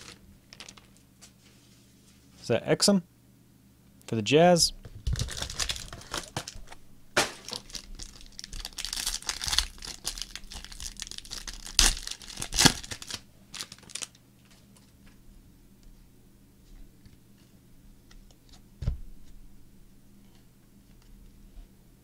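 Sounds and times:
foil pack crinkling: 0.0 - 1.0, 5.0 - 14.2
foil pack ripping: 0.0 - 1.0, 5.1 - 14.2.

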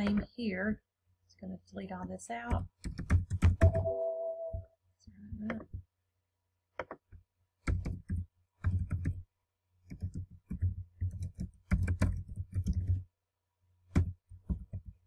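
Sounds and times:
keyboard typing: 2.6 - 4.6, 7.7 - 9.2, 9.9 - 13.0.

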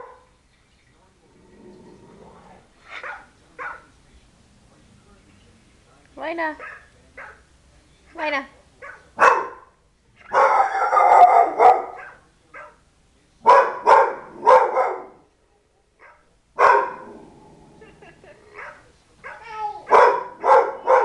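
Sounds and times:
dog barking: 0.0 - 0.2, 3.0 - 3.9, 6.6 - 7.5, 8.8 - 9.7, 10.3 - 12.8, 13.5 - 15.2, 16.0 - 17.1, 18.6 - 21.0
dog low rumble: 1.2 - 2.8, 16.9 - 18.6.

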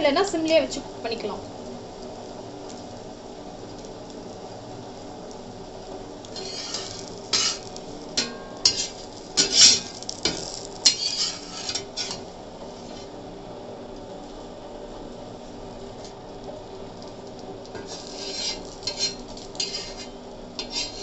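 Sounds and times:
faint sizzle: 0.0 - 21.0
metal spatula scraping a pan: 6.3 - 13.1, 17.8 - 21.0.

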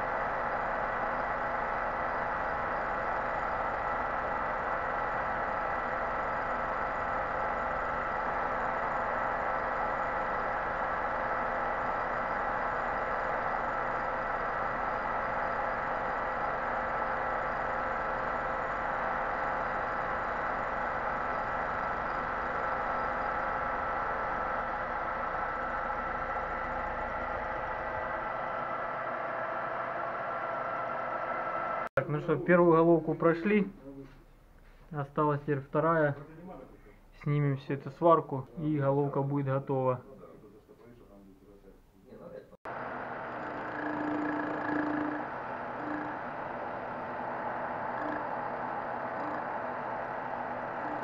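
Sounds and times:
cutter head whining over hiss: 42.7 - 51.0.

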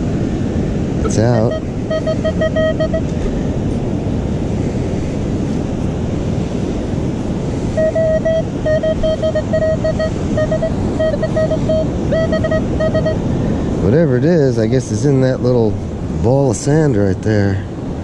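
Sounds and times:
wind buffeting microphone: 0.0 - 16.2
heavy surf: 0.0 - 18.0
metal detector beeps: 1.0 - 3.2, 7.8 - 13.3.

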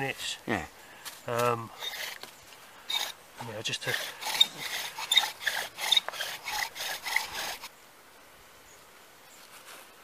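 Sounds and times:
bow drill rasping on wood: 1.7 - 2.3, 2.9 - 7.7.

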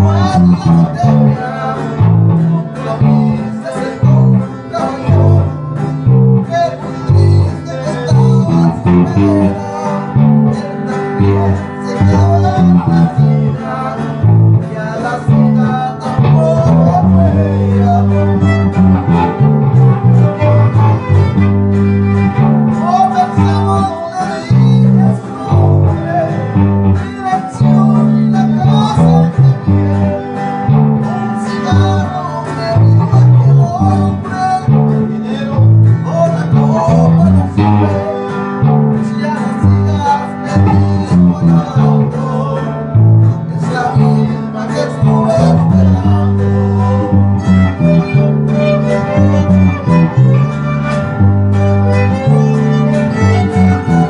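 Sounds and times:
low bass notes: 0.0 - 54.0
strummed guitar: 0.0 - 54.0
bowed fiddle melody: 16.9 - 23.9, 46.6 - 54.0.

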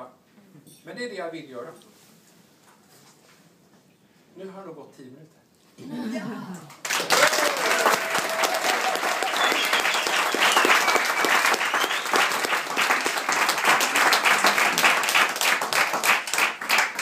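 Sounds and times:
audience applauding: 6.8 - 17.0.

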